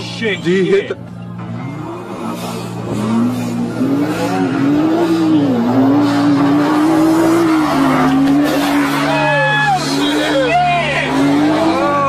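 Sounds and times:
car engine revving hard: 1.4s - 12.0s.

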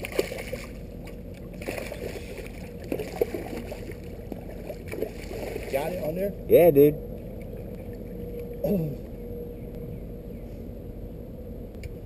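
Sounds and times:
sharp splash: 0.0s - 0.8s, 1.6s - 5.8s
fish thrashing at water surface: 0.0s - 5.8s
water sloshing: 0.0s - 6.2s.

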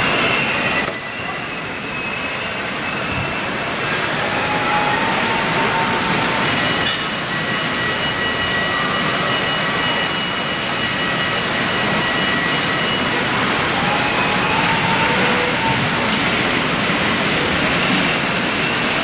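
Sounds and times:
steady background noise: 0.0s - 19.0s
model trains running: 3.9s - 19.0s.

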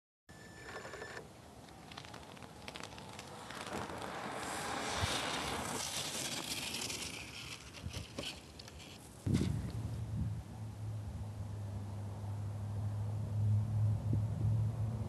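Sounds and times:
wind rushing over microphone: 9.2s - 11.3s, 13.9s - 15.0s.

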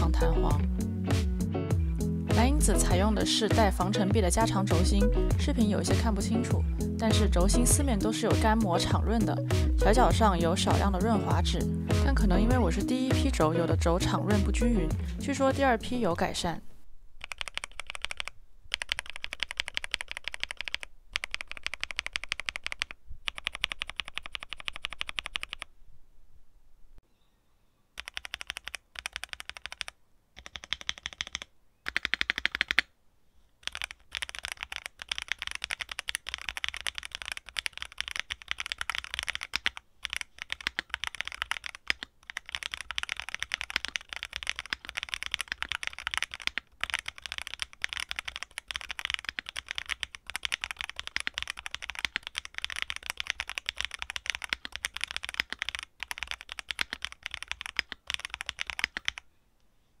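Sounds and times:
fast typing on mechanical keyboard: 17.2s - 25.7s, 28.0s - 32.9s, 33.6s - 59.2s.

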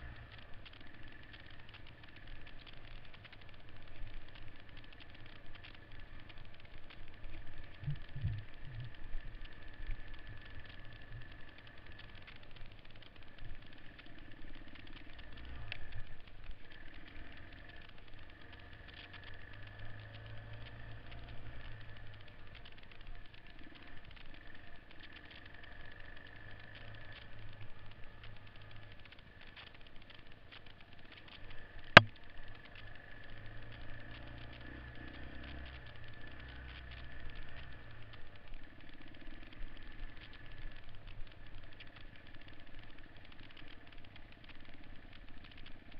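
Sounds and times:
motorcycle engine running: 0.0s - 16.2s
bike rattling over rough ground: 0.0s - 45.9s.

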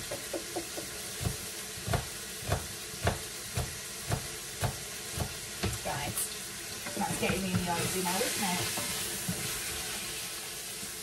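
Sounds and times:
meat sizzling in a pot: 0.0s - 11.0s
utensil scraping a pot: 6.8s - 9.9s.

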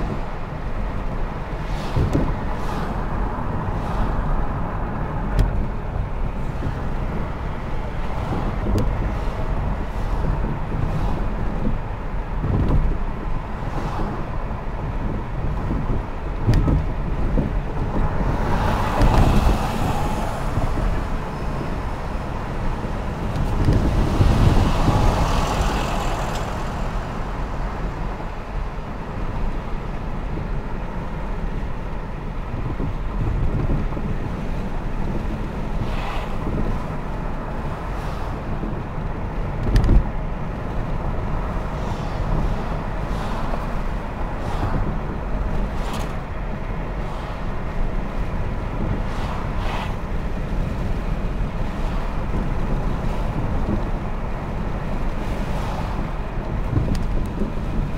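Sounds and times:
engine and tyre rumble: 0.0s - 57.9s
rushing noise: 17.7s - 30.6s.

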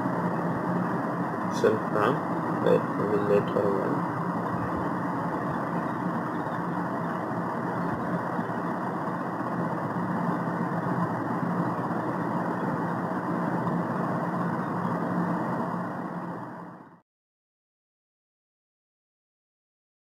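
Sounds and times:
machine hum: 0.0s - 17.0s.

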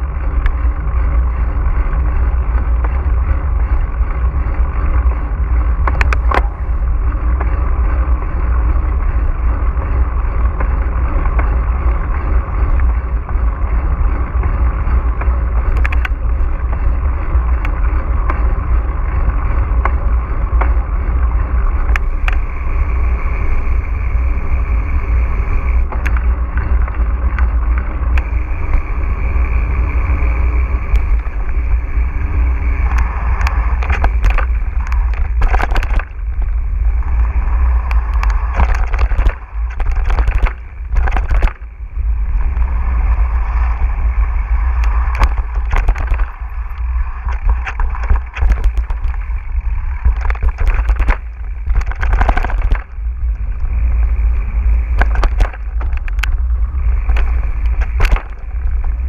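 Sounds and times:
bike clicks and knocks over bumps: 0.0s - 59.0s
tyres rolling over dirt: 0.0s - 59.0s
wind on microphone: 0.0s - 59.0s.

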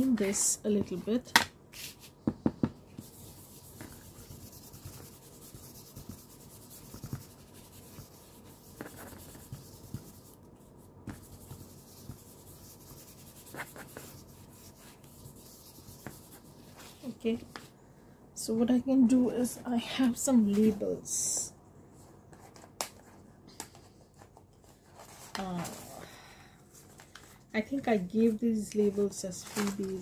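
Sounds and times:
ink tool rubbing paper: 3.0s - 17.1s.

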